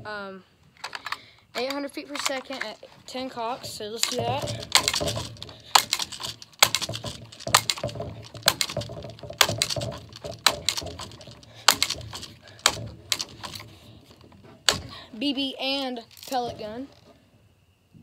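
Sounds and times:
air rifle pump strokes clicking: 0:03.6 - 0:14.9.

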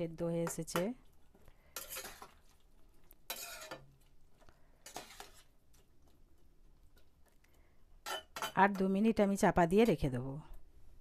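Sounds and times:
metal spatula stirring curry: 0:00.4 - 0:04.1, 0:04.8 - 0:05.6.

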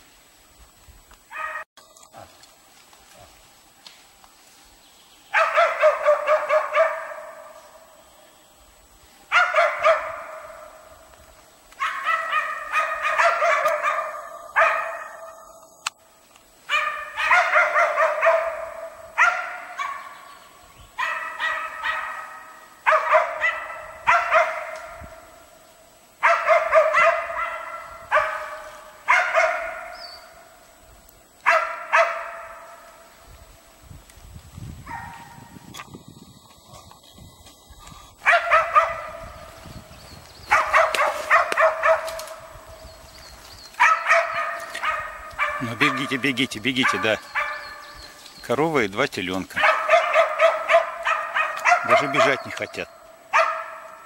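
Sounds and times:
dogs bay-barking: 0:01.3 - 0:01.7, 0:05.3 - 0:07.5, 0:09.3 - 0:10.7, 0:11.8 - 0:15.4, 0:16.7 - 0:20.1, 0:21.0 - 0:25.0, 0:26.2 - 0:30.0, 0:31.4 - 0:32.8, 0:38.2 - 0:39.4, 0:40.5 - 0:42.5, 0:43.8 - 0:47.9, 0:49.5 - 0:54.0.

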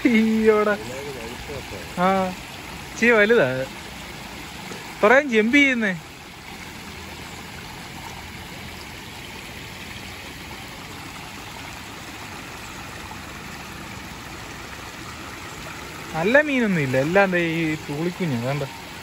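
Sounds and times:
water rushing through canal: 0:00.0 - 0:19.0.

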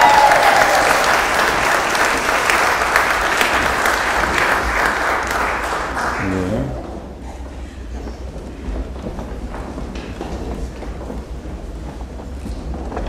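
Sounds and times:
crowd applauding: 0:00.0 - 0:06.9.

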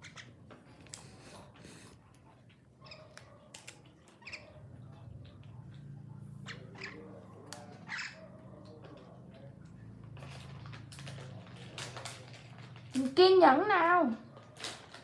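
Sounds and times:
birds chirping squeakily: 0:00.0 - 0:00.5, 0:02.8 - 0:05.0, 0:06.4 - 0:08.4.

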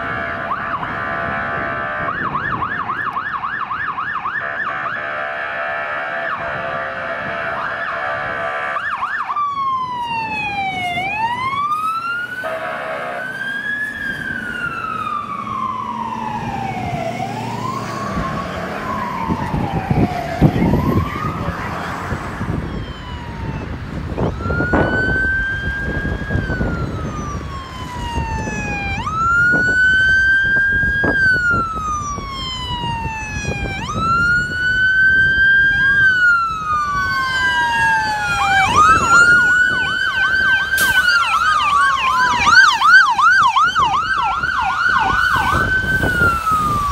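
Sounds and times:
fire truck sirens wailing: 0:00.0 - 0:46.9
truck engines rumbling: 0:00.0 - 0:46.9
steady horn-like tone: 0:12.4 - 0:13.3.

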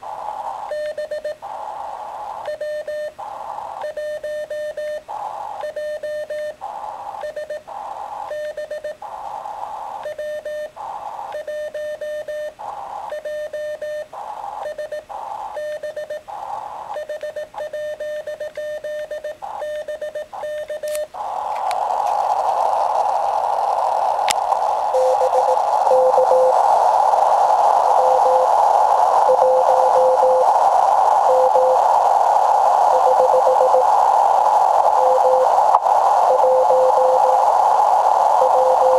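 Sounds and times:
faint morse signal: 0:00.0 - 0:21.6, 0:24.8 - 0:38.9
radio band noise hiss: 0:00.0 - 0:38.9
morse code beeps: 0:08.3 - 0:09.0, 0:10.1 - 0:10.7, 0:13.1 - 0:14.0, 0:15.6 - 0:16.2, 0:17.0 - 0:21.0, 0:25.0 - 0:26.6, 0:27.9 - 0:28.5, 0:29.2 - 0:30.5, 0:31.3 - 0:31.8, 0:32.9 - 0:33.9, 0:34.9 - 0:35.5, 0:36.2 - 0:37.4, 0:38.4 - 0:38.9.

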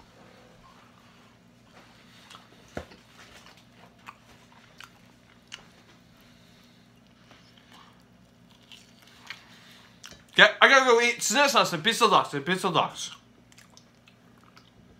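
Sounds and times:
person chewing fried chicken: 0:02.0 - 0:10.4, 0:13.1 - 0:14.9.

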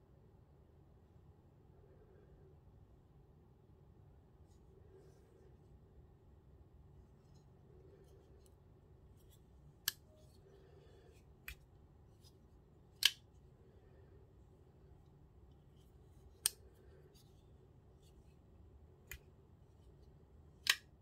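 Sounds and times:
folding knife clicking: 0:13.0 - 0:13.2, 0:20.6 - 0:20.8.

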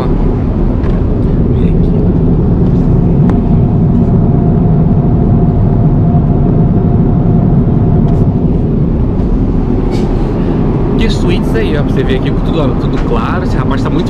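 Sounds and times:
engines and rushing air roar: 0:00.0 - 0:14.0
faint steady whine: 0:00.0 - 0:14.0.

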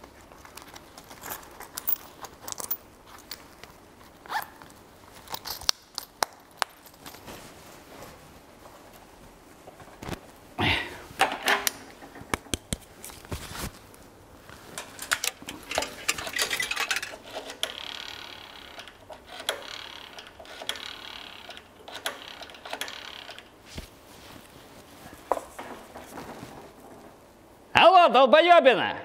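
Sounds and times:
small hard objects clattering: 0:14.7 - 0:17.7.

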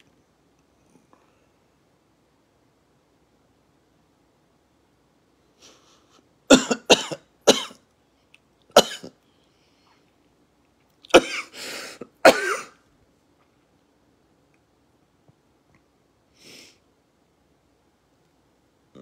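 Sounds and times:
man coughing: 0:06.5 - 0:07.8, 0:08.8 - 0:09.2, 0:11.1 - 0:12.8.

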